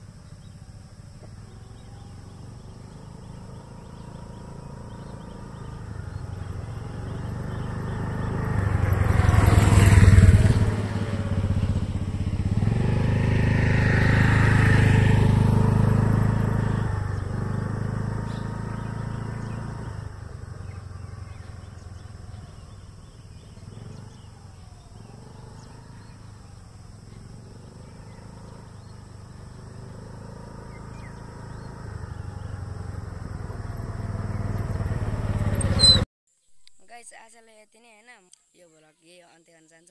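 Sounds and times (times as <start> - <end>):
motor scooter passing: 0.0 - 36.1.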